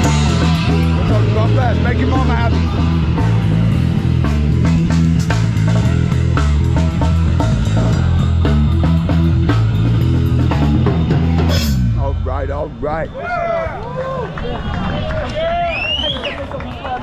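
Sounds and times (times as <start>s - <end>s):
drum kit beat: 0.0s - 12.8s
bass notes: 0.0s - 15.1s.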